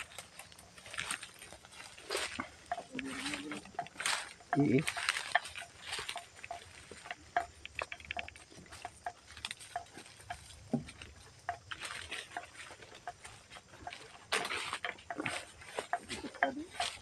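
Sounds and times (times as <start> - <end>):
footsteps through dry leaves: 0.0 - 7.1, 11.7 - 17.0.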